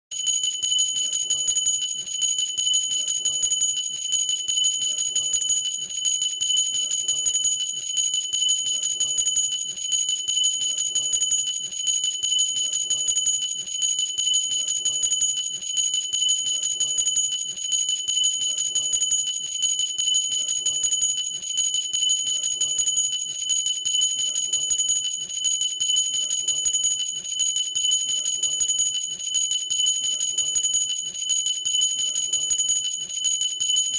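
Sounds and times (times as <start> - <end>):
glass hand bell ringing: 0.2 - 17.4, 25.8 - 33.9.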